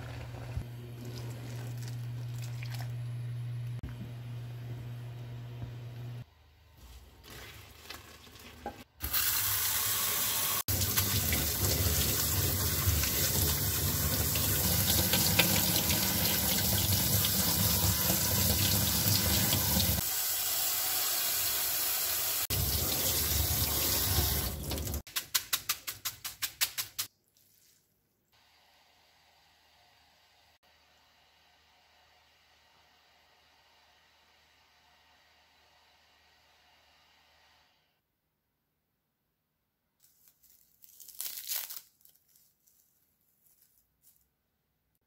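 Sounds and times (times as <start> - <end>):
tap water rushing into sink: 8.6 - 20.0.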